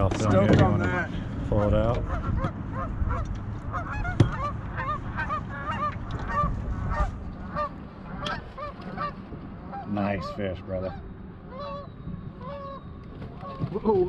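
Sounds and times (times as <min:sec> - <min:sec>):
geese honking: 0:01.5 - 0:14.0.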